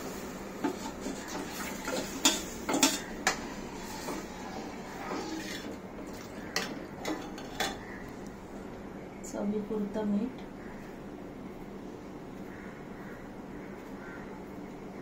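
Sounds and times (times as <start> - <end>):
steel utensils clinking on pan: 1.8 - 3.4.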